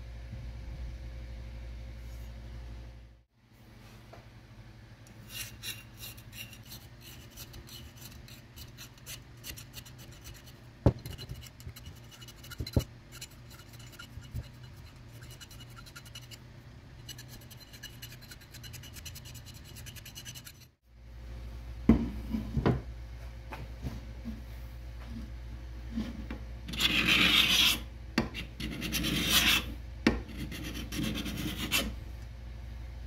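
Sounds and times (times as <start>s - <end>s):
file rasping on steel: 5.3s - 16.4s, 17.0s - 20.8s, 26.7s - 32.0s.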